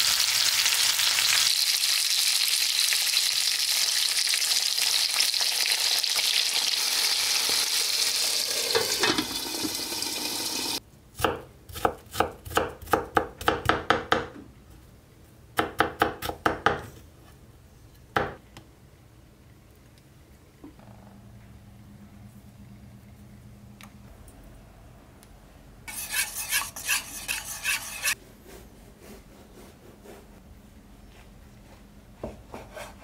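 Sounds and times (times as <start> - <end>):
food sizzling in frying pan: 0.0 - 10.8.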